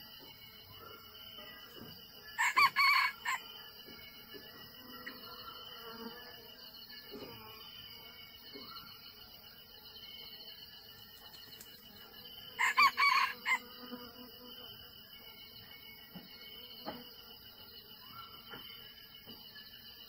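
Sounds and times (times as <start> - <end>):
insects droning: 0.0 - 20.0
rooster crowing: 2.4 - 3.4, 12.6 - 13.6.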